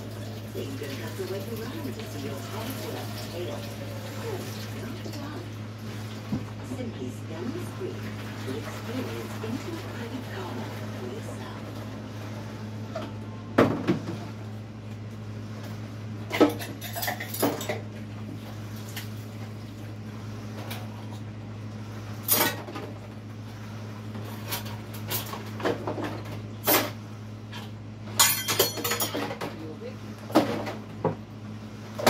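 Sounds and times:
steady low hum: 0:00.0 - 0:32.0
dishes and cutlery clinking: 0:16.3 - 0:17.9, 0:27.6 - 0:29.6.

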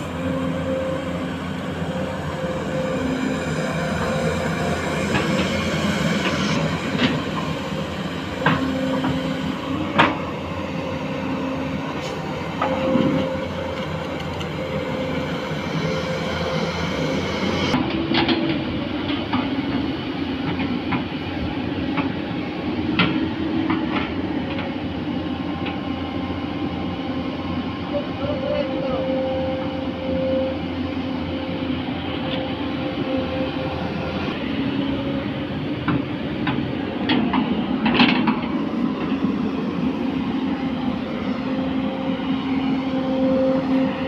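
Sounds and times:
excavator diesel engines running: 0:00.0 - 0:44.0.

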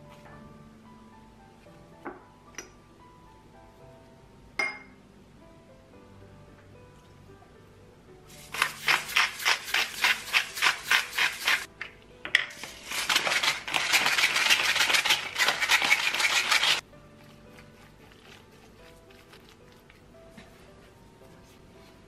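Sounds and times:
soft background music: 0:00.0 - 0:22.0
spatula mixing meat in glass bowl: 0:08.3 - 0:11.7, 0:12.6 - 0:20.6.

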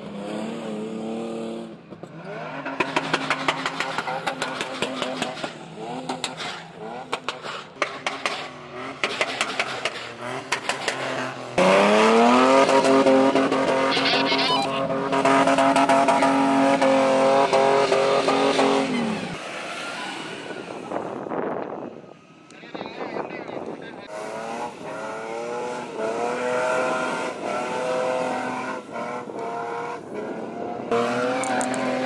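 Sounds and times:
suv engine revving hard: 0:02.4 - 0:21.0, 0:24.1 - 0:32.0.

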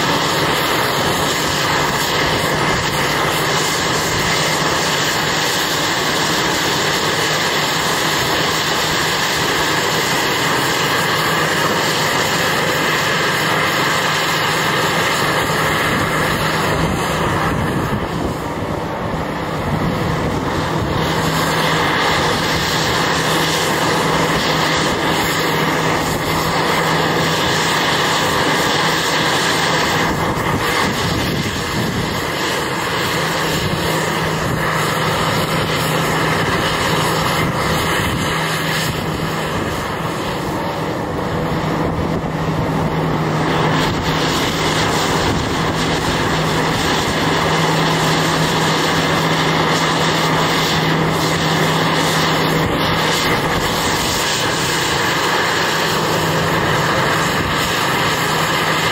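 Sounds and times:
diesel engine under load: 0:00.0 - 0:58.9.

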